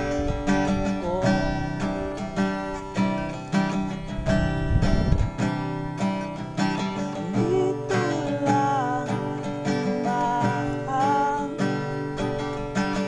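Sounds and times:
strummed acoustic guitar: 0.0s - 13.0s
sliding melody line: 6.6s - 13.0s.

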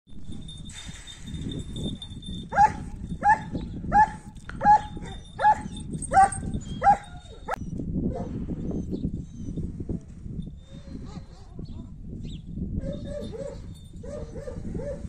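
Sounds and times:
dog barking: 2.6s - 8.3s, 11.1s - 11.6s.

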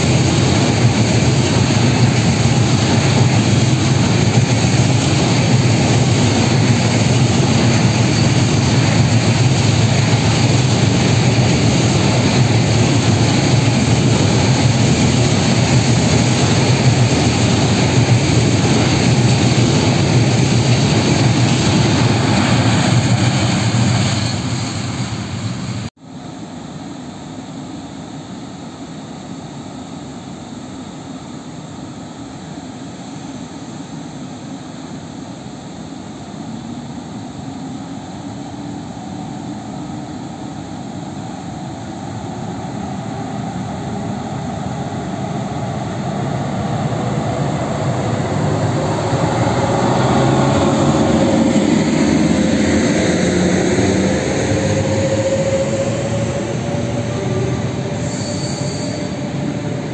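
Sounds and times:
train coaches rumbling past: 0.0s - 28.8s, 29.6s - 59.9s
freight train rolling: 0.0s - 59.9s.

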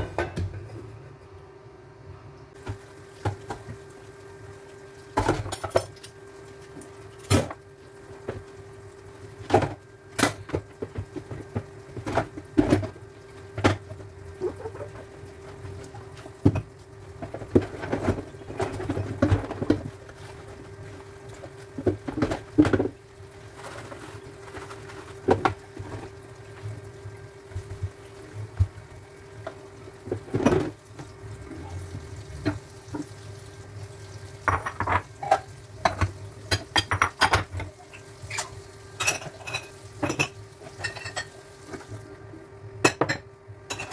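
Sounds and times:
running water: 10.9s - 42.2s
dishes clinking and knocking: 34.4s - 41.4s, 42.8s - 43.9s.

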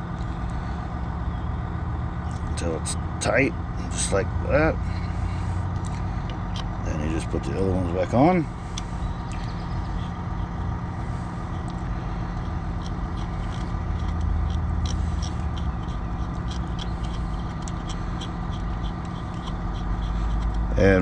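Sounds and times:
idling engine hum: 0.0s - 21.0s.

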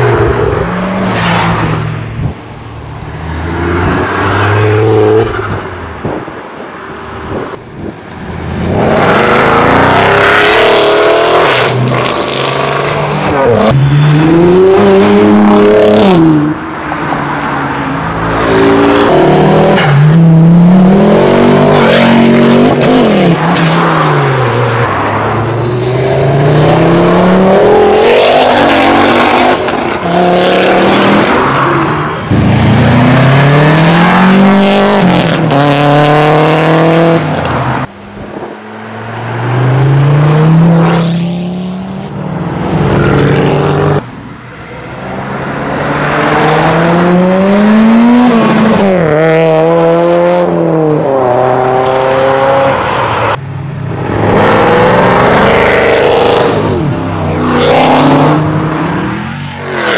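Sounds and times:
car engines revving accelerating: 0.0s - 59.9s.

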